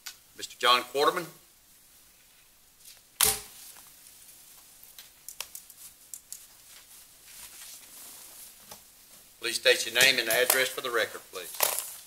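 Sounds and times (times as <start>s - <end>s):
rustling: 1.7s - 12.0s
sharp knock: 3.2s - 3.6s.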